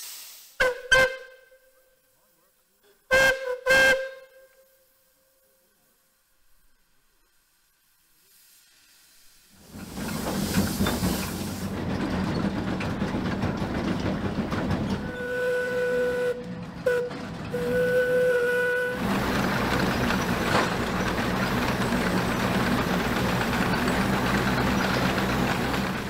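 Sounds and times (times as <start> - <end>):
steam hissing: 0.0 - 1.2, 6.4 - 12.0, 17.5 - 26.0
steam whistle: 0.6 - 1.8, 3.1 - 5.7, 15.0 - 19.4.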